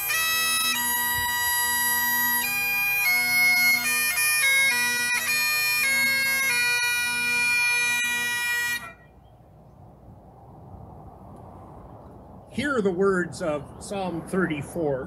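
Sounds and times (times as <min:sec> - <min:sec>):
bagpipes playing a tune: 0:00.0 - 0:09.2.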